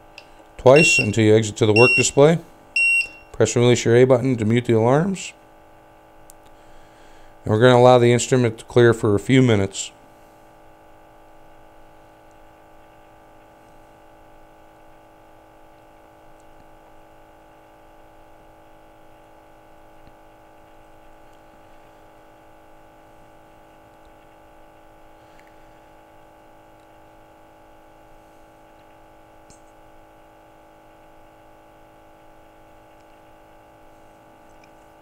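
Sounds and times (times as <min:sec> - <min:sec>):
sample pump humming: 0:00.0 - 0:05.2
steady electronic tones: 0:00.6 - 0:03.3.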